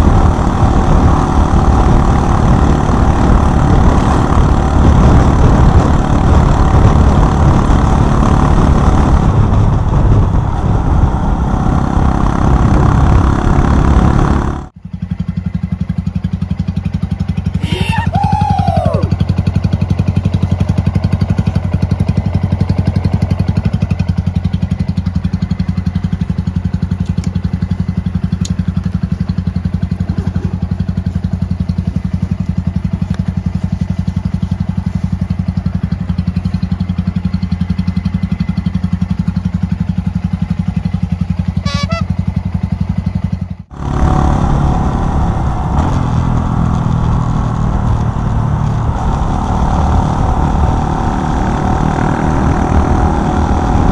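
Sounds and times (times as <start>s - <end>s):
wind noise: 0.0s - 14.4s
motorcycle engine idling: 0.0s - 17.7s, 18.8s - 48.9s
motorcycle engine under way: 0.0s - 53.9s.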